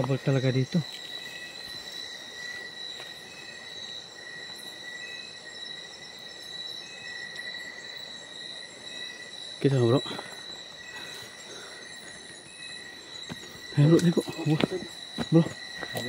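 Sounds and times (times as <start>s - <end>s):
night insects chirring: 0.0s - 16.0s.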